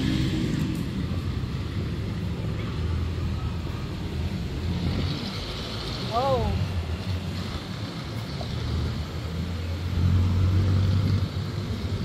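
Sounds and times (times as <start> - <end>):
engine hum: 0.0 - 12.0
street traffic rumble: 0.0 - 12.0.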